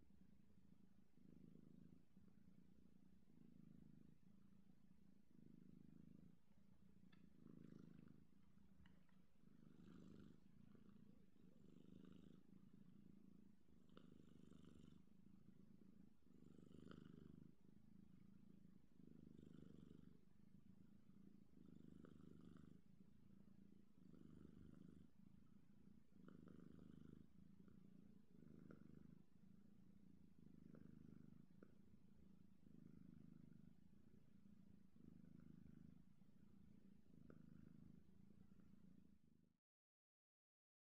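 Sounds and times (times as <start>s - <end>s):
kitten purring: 0.0s - 39.4s.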